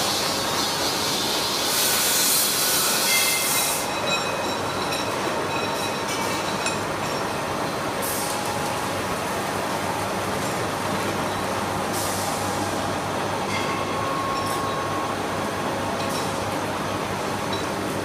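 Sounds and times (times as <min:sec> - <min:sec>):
loud high hiss: 0:00.0 - 0:03.9.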